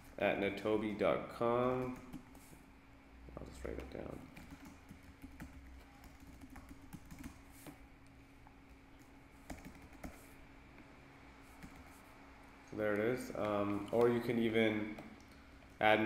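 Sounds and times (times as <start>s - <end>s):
faint steady hum: 0.0s - 16.0s
typing on keyboard: 3.8s - 7.4s, 9.4s - 10.2s, 11.6s - 11.9s.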